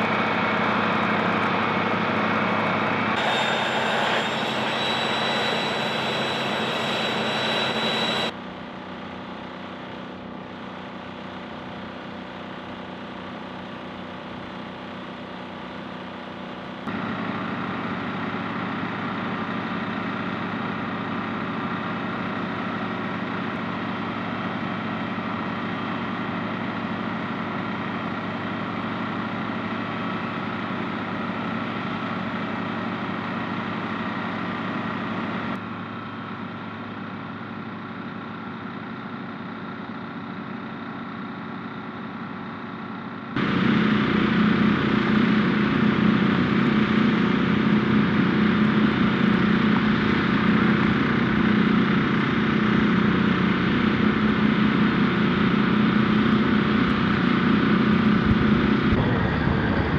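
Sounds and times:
heavy engines humming: 0:00.0 - 0:10.8, 0:16.5 - 0:59.9.

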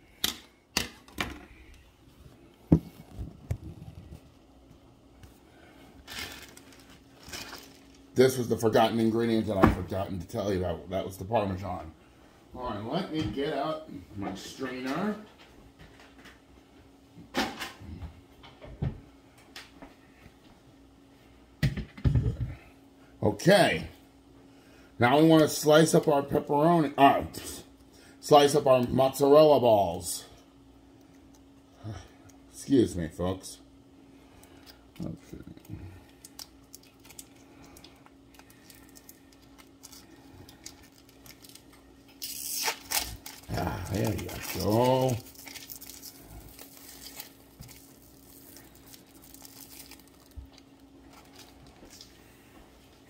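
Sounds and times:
faint steady hum: 0:00.0 - 0:53.0
plastic wrapping crinkling: 0:06.0 - 0:08.2, 0:36.1 - 0:52.2.

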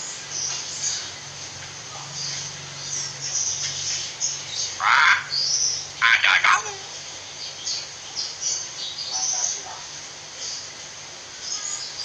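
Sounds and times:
harsh bird call: 0:04.7 - 0:06.9.

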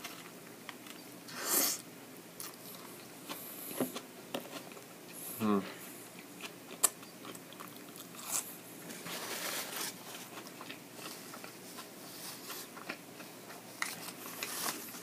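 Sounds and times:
chewing food: 0:06.1 - 0:08.6, 0:09.9 - 0:15.0
paper and foil wrapper rustling: 0:08.8 - 0:13.0, 0:13.8 - 0:15.0.

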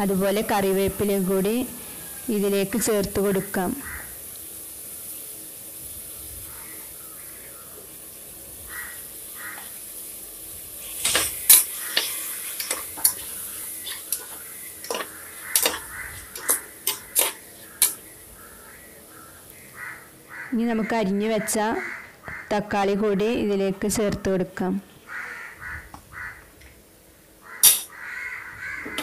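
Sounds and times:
onions sizzling in oil: 0:00.0 - 0:20.4.

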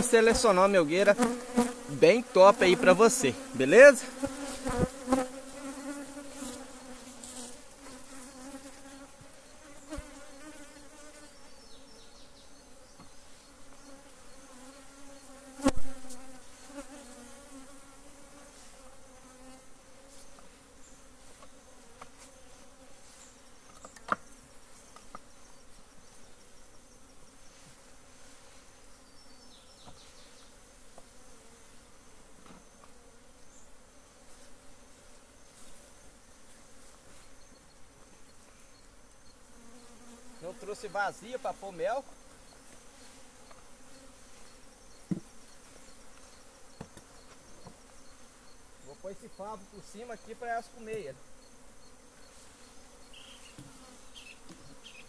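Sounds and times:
honeybees buzzing: 0:00.0 - 0:55.0
hive box knock: 0:45.0 - 0:45.3.

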